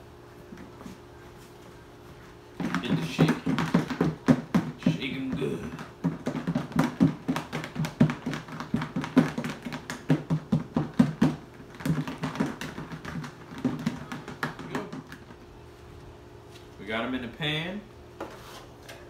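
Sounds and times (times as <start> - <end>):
food knocking in shaken container: 2.6 - 15.4.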